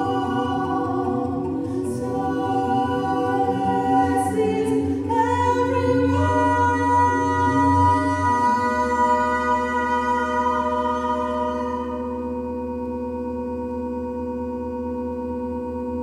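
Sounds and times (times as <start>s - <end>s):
women singing in harmony: 0.0s - 12.6s.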